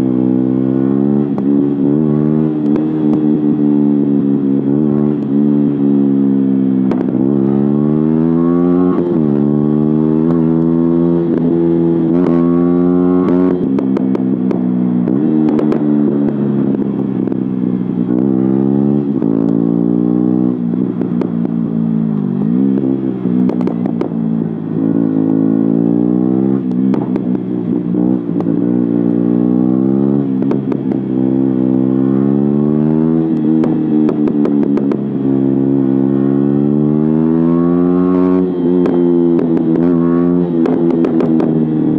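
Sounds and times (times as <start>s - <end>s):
motorcycle engine accelerating hard: 0.0s - 41.9s
exhaust cracks: 20.6s - 25.0s, 26.6s - 29.2s.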